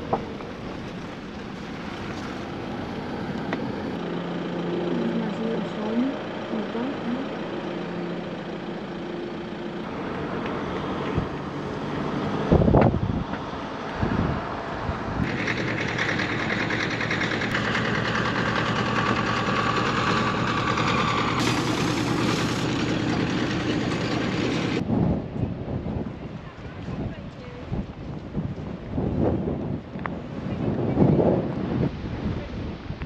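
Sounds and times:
motorhome engine running: 0.0s - 24.9s
road and wind noise: 0.0s - 33.0s.

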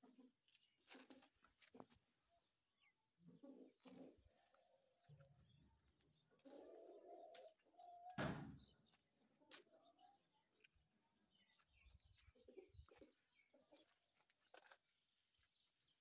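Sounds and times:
faint pigeon cooing: 3.2s - 8.2s, 11.9s - 14.8s
short loud knock: 8.2s - 8.6s.

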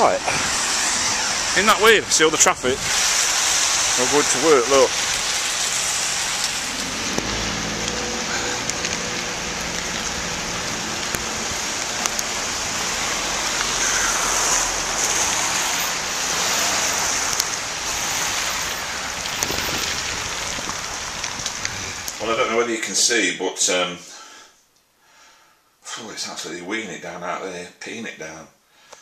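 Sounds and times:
car driving past on wet road: 0.0s - 22.5s
heavy rain on wet road: 0.0s - 22.7s.

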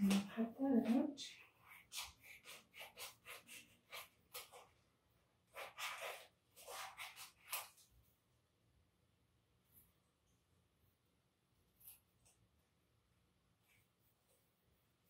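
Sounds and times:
scissors snipping paper: 0.1s - 4.7s, 5.5s - 7.9s.

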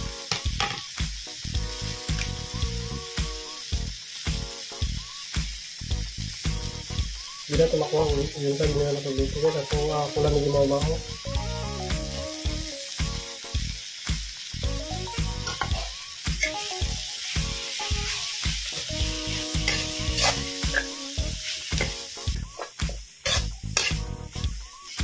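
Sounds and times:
faint background music: 0.0s - 25.0s
rice sizzling in a wok: 0.0s - 25.0s
metal ladle scraping a wok: 19.7s - 20.9s, 23.2s - 24.0s.

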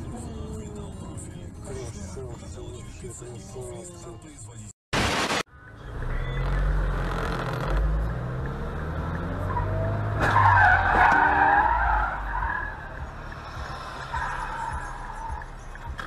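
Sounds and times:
car engine revving: 5.8s - 15.7s.

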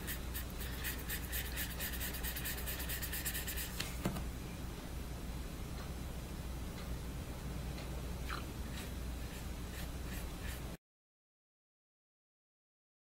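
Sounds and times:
paintbrush scrubbing on paper: 0.0s - 3.8s, 8.7s - 10.8s.

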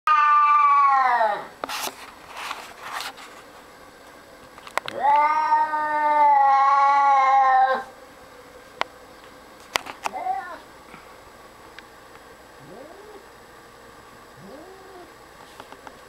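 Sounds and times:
cat growling and yowling: 0.1s - 1.5s, 4.9s - 7.9s, 10.1s - 10.6s, 12.6s - 13.3s, 14.4s - 15.2s.

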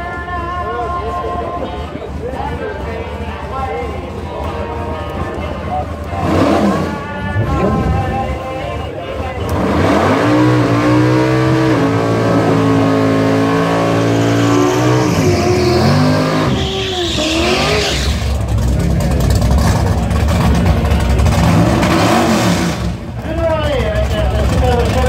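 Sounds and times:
car engine revving: 5.7s - 25.0s
tyres squealing: 9.4s - 18.6s.

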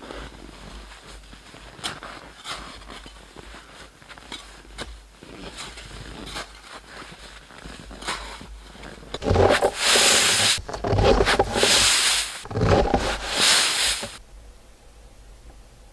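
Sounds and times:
jacket and backpack rustling: 3.2s - 14.2s.

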